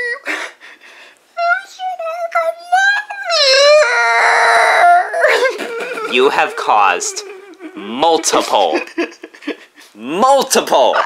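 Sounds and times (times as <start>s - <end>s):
high-pitched voice whining: 1.4s - 8.6s.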